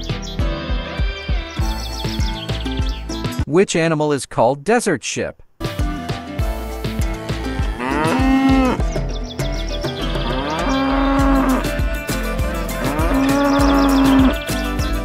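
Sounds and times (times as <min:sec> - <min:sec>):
background music with steady beat: 0:00.0 - 0:03.5, 0:05.6 - 0:15.0
cow mooing: 0:07.5 - 0:08.8, 0:10.2 - 0:11.8, 0:12.7 - 0:14.4.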